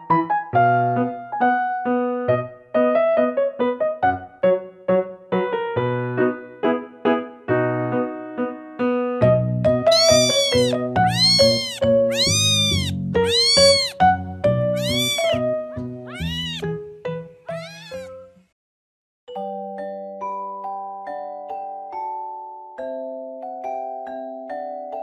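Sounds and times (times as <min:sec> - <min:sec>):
piano music: 0:09.7 - 0:18.3
kitten meowing: 0:09.9 - 0:14.0, 0:14.8 - 0:16.7, 0:17.5 - 0:18.2.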